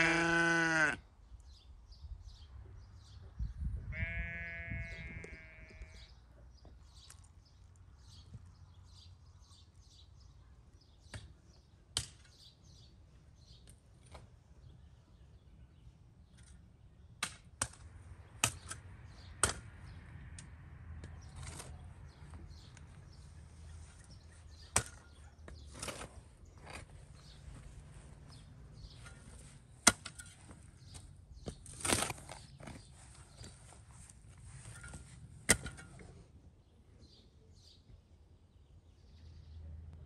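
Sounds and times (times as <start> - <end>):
sheep bleating: 0.0 - 1.0, 3.9 - 6.1.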